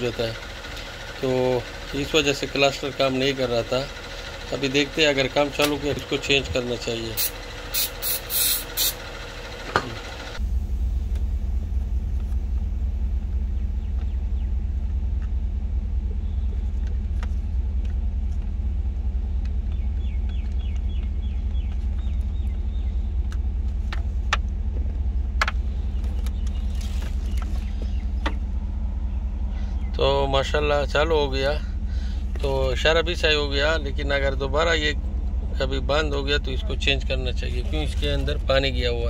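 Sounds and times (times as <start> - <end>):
engine idling rumble: 0.0 - 39.0
aerosol spray hiss: 7.2 - 9.0.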